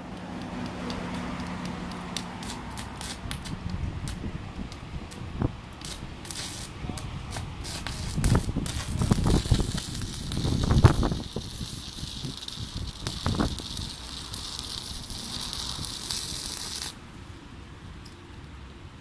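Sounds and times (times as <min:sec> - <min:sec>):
sputtering pops: 0:00.0 - 0:05.2, 0:05.8 - 0:17.0
welding arc crackling hiss: 0:01.4 - 0:04.2, 0:05.8 - 0:17.0.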